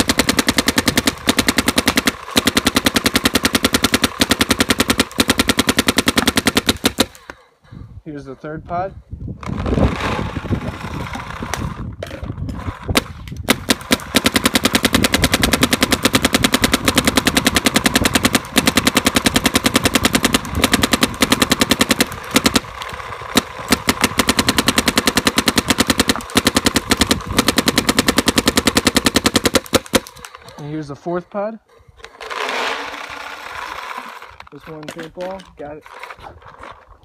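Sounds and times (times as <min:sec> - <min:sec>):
paintball marker rapid firing: 0:00.0 - 0:07.3, 0:12.9 - 0:30.4
paintballs rattling into loader: 0:32.0 - 0:36.9.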